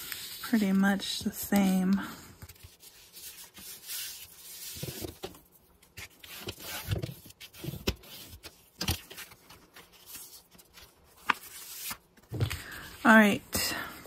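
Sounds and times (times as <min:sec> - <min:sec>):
paper being rubbed and scraped: 0:00.0 - 0:00.8, 0:02.6 - 0:05.1.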